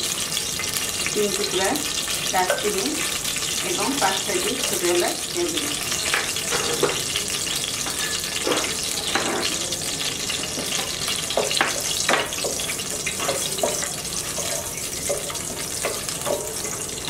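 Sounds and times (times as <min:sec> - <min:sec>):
spices sizzling in hot oil: 0:00.0 - 0:17.0
wooden spatula stirring in pan: 0:10.3 - 0:17.0.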